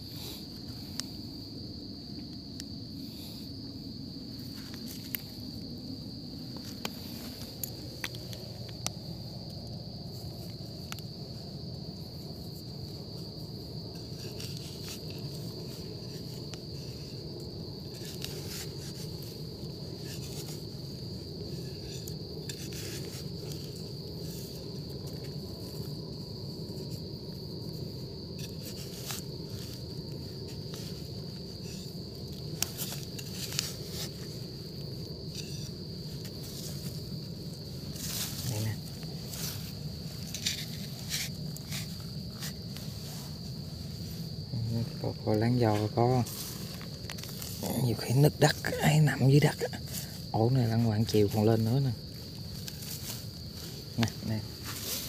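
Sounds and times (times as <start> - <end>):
insects chirring: 0.0 - 55.0
fingers scratching dry leaves: 17.8 - 26.0, 27.8 - 43.4, 45.7 - 55.0.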